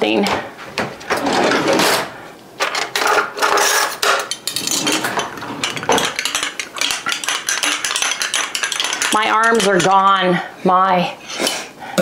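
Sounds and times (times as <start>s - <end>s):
utensil clattering in a bottle: 4.0s - 10.0s.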